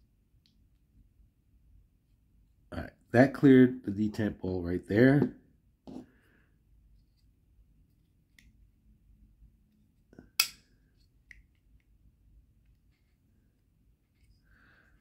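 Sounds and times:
folding knife blade clicking: 0:10.4 - 0:10.6
folding knife blade snapping: 0:10.4 - 0:10.6.

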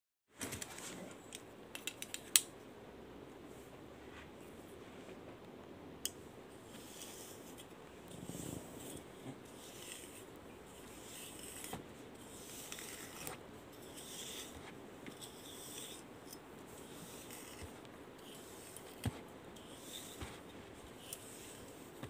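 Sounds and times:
comb rasping through wet hair: 0:06.7 - 0:16.1, 0:16.8 - 0:22.0.

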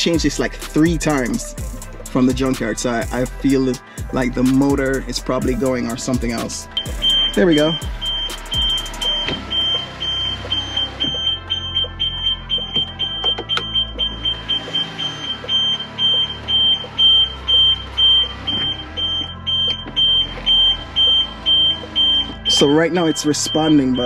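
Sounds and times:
car warning chime beeping: 0:05.8 - 0:24.0.

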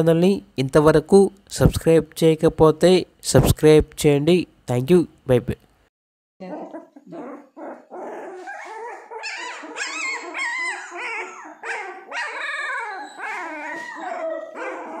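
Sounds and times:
puppies whining and squealing: 0:06.4 - 0:15.0.

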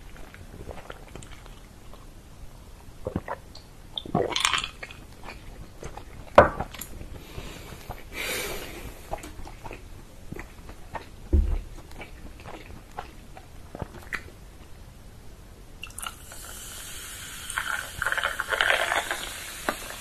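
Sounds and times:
chewing with mouth clicks: 0:00.0 - 0:02.1, 0:03.0 - 0:07.1, 0:09.0 - 0:14.8
mug knocking on table: 0:11.3 - 0:11.6.

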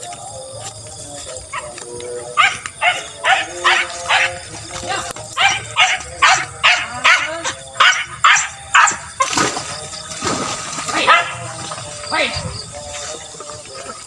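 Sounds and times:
hounds baying and yelping: 0:00.6 - 0:09.4, 0:10.9 - 0:12.4.

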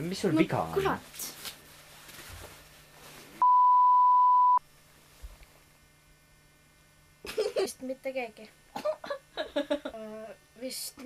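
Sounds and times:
censor bleep: 0:03.4 - 0:04.6.

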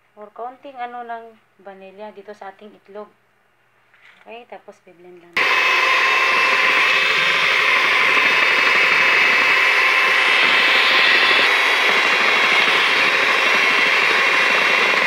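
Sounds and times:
electric mixer whining: 0:05.4 - 0:15.0.

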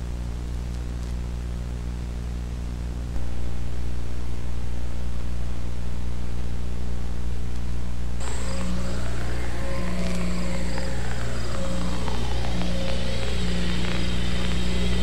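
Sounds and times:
low droning hum: 0:00.0 - 0:15.0
hiss: 0:08.2 - 0:15.0
thin high tone: 0:08.2 - 0:15.0.

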